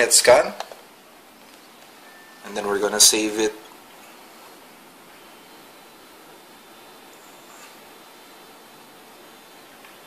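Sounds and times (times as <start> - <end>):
faint room noise hiss: 0.0 - 10.0
faint thin high tone: 2.0 - 2.7.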